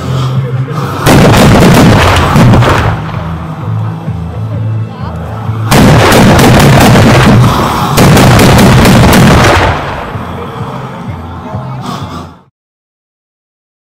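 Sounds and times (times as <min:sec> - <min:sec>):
music: 0:00.0 - 0:01.2, 0:01.8 - 0:12.5
carbide cannons firing bangs: 0:01.0 - 0:03.1, 0:05.7 - 0:10.1.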